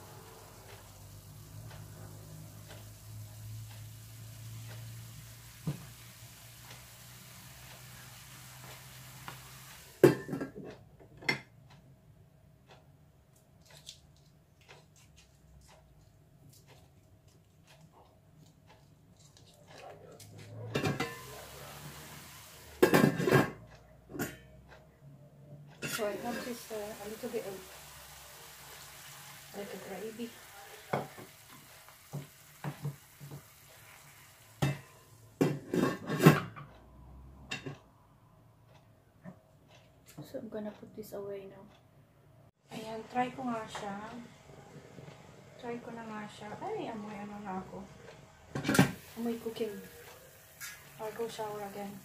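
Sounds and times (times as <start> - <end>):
soft steady hiss: 0.0 - 10.6, 18.4 - 24.4, 25.2 - 35.6, 42.6 - 52.0
wooden spoon stirring in skillet: 1.9 - 10.2, 25.8 - 34.8, 49.0 - 52.0.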